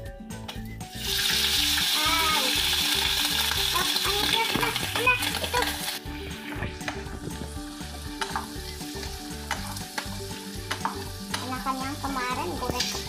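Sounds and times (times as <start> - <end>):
food sizzling in hot oil: 0.8 - 13.0
spatula knocking against pan: 9.5 - 11.5.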